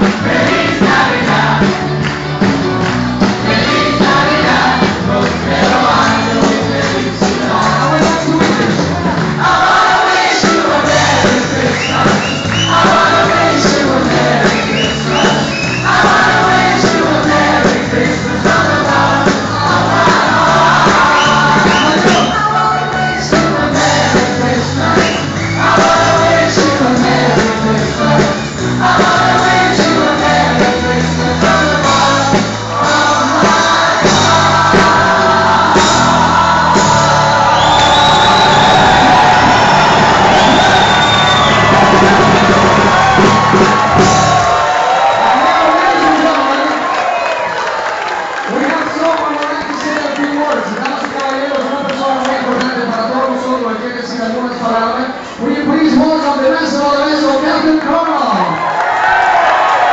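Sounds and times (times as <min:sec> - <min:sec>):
crowd singing along: 0:00.0 - 0:45.0
band music: 0:00.0 - 0:58.5
upbeat amplified song: 0:00.0 - 0:59.9.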